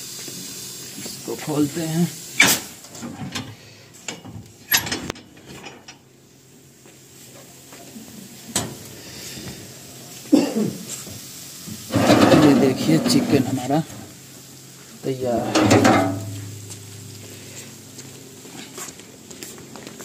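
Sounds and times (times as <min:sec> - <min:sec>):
metal oven door clanking: 0:04.2 - 0:05.9, 0:11.8 - 0:13.6, 0:15.3 - 0:16.6.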